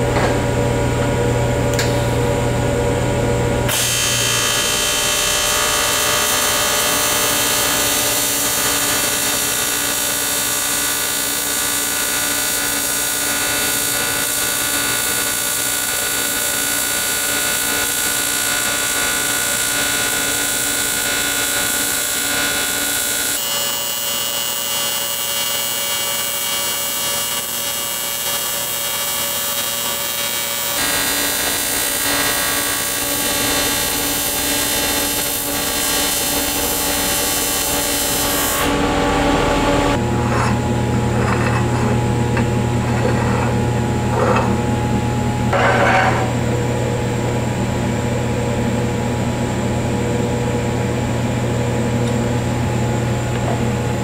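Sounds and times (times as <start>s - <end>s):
welding arc buzzing: 0.0s - 46.8s.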